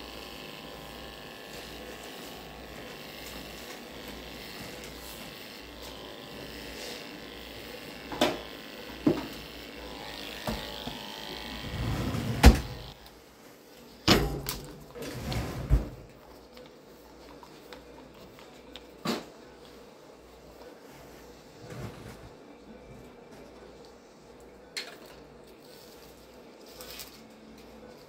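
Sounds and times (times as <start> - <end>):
electric clippers running: 0.0 - 13.0.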